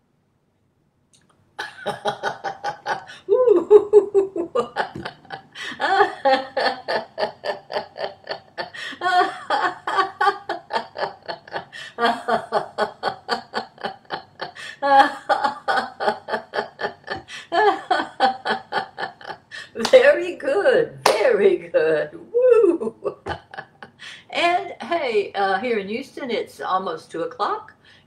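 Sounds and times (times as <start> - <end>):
woman laughing heartily: 1.6 - 19.9, 22.4 - 24.2.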